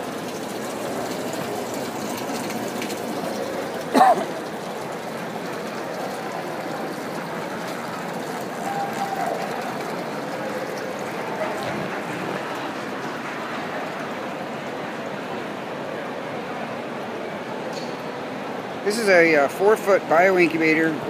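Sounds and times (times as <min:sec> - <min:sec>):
water splashing into tank: 0:00.0 - 0:14.5
faint voices: 0:01.4 - 0:20.4.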